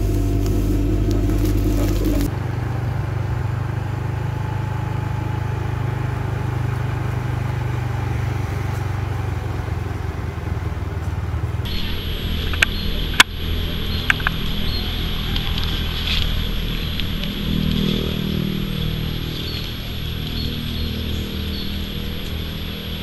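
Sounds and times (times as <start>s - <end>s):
steady low hum: 0.0s - 4.0s, 11.3s - 23.0s
vehicle engine and road noise: 0.0s - 23.0s.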